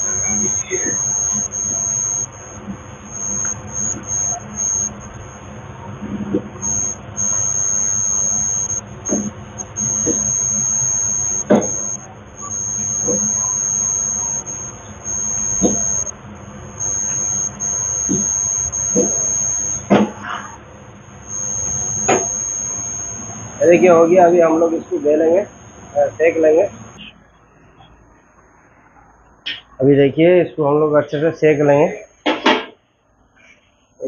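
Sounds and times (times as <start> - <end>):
high-pitched tone cutting in and out: 0.0 - 5.5, 6.6 - 16.1, 16.8 - 20.6, 21.2 - 29.6.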